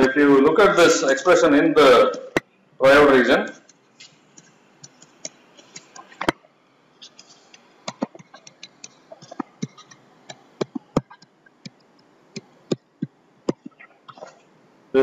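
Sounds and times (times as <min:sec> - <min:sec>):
stylus tapping on tablet screen: 0:04.0 - 0:06.4, 0:07.0 - 0:14.4.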